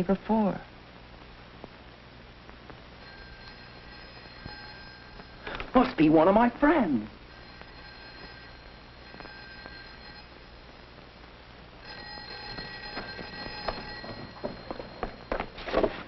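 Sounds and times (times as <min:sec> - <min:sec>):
telephone bell ringing: 0:03.0 - 0:11.0, 0:11.8 - 0:16.0.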